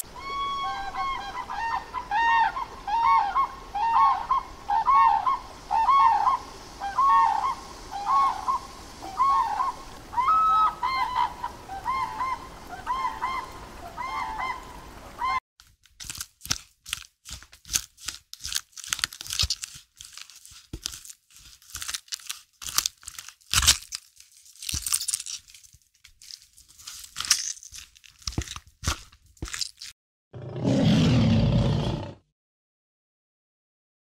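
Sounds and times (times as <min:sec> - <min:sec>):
squirrel gnawing and chewing: 0:15.6 - 0:29.9
lion growl: 0:30.4 - 0:32.2.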